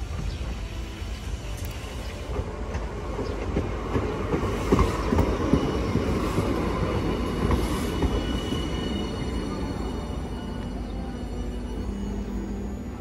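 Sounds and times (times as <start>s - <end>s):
tram passing: 0.0s - 13.0s
wheels rumbling on rails: 0.0s - 13.0s
high wheel squeal: 4.8s - 13.0s.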